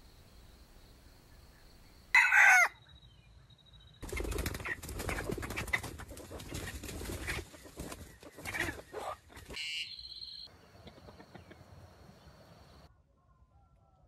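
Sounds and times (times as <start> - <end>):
rooster crowing: 2.1 - 2.8
faint clucks: 10.7 - 11.8.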